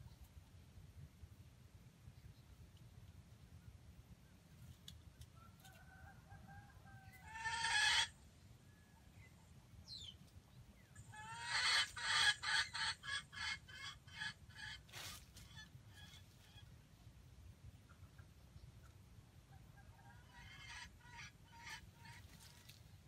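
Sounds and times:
chicken clucking: 4.6 - 8.2, 10.8 - 16.8, 17.7 - 22.9
chicken harsh call: 7.1 - 8.1, 11.1 - 14.8.

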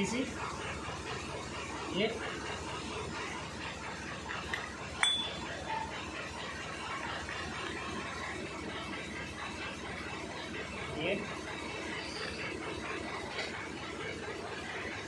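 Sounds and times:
steel gears clinking: 5.0 - 5.5.

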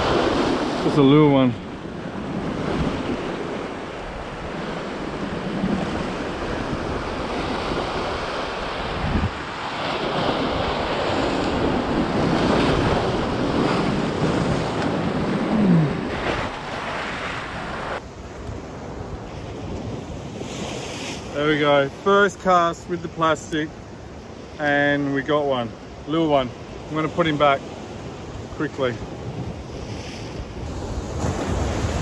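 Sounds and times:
wind buffeting microphone: 0.0 - 21.4, 29.0 - 32.0.

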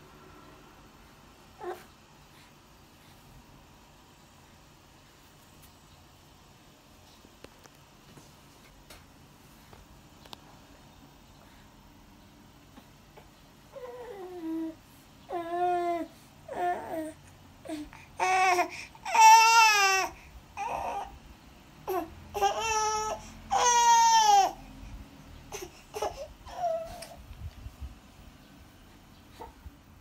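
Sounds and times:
baby crying: 13.7 - 21.2, 21.8 - 24.6, 25.5 - 27.2.

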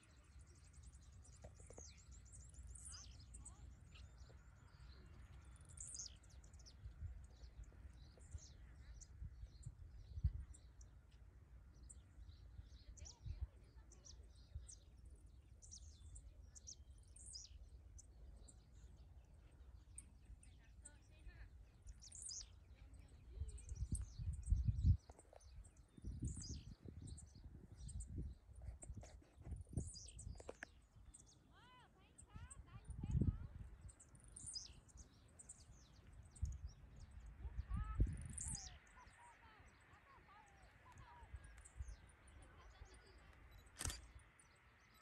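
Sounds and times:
faint bird chirps: 0.0 - 45.0
wind buffeting microphone: 6.2 - 10.8, 21.9 - 31.1, 32.4 - 39.1.

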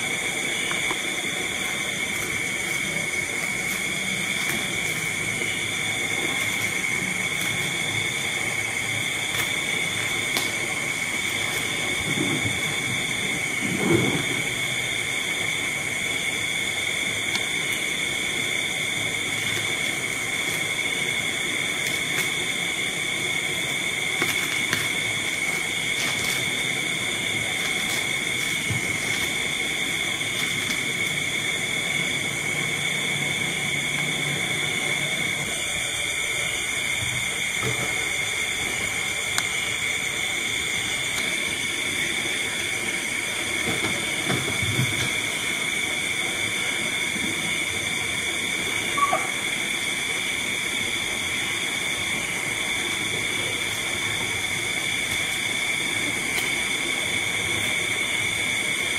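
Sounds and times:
steady background hiss: 0.0 - 58.9
thin high tones: 48.9 - 49.4.

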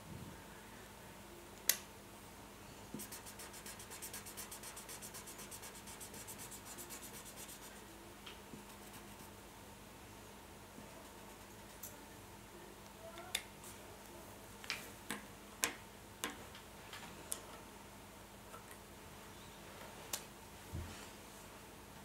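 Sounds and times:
marker scribbling on paper: 3.0 - 7.8.

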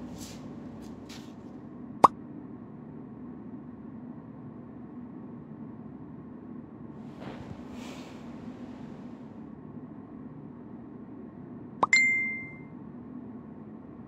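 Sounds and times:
phone message alert pop: 11.8 - 12.6.

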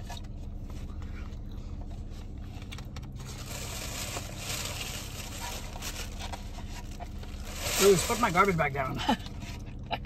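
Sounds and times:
low steady hum: 0.0 - 10.0
plastic garbage bag crinkling: 3.0 - 9.0.

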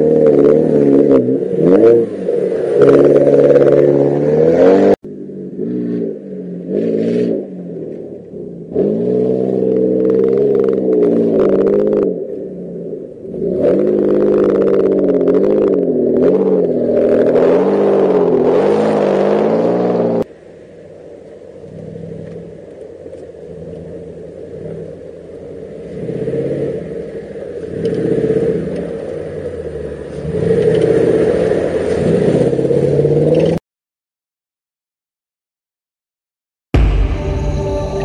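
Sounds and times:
close engine revving: 0.0 - 20.3, 21.5 - 33.6
distant engine climbing: 36.8 - 38.0.

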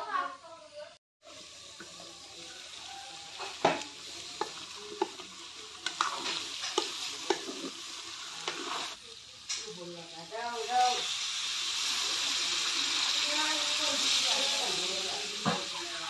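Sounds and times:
food sizzling in pan: 0.0 - 16.0
wooden spatula scraping pan: 8.4 - 9.0.

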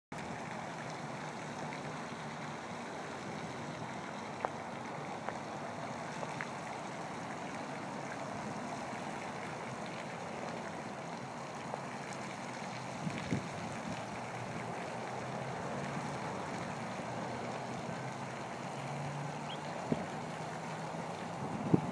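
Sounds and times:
fountain spray splashing: 0.2 - 21.9.

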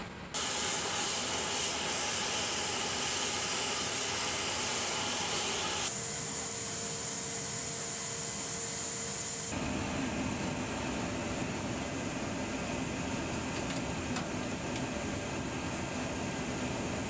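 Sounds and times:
aircraft cabin hiss and hum: 9.4 - 17.0.

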